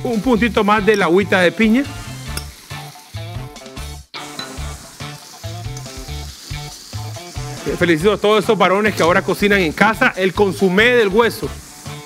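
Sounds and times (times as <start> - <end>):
background music with bass beat: 0.0 - 8.2
food sizzling in frying pan: 0.0 - 12.0.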